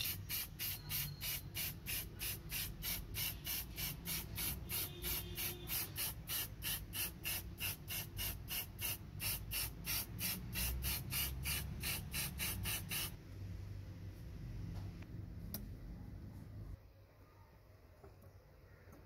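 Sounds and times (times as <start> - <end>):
spray can hissing bursts: 0.0 - 13.2.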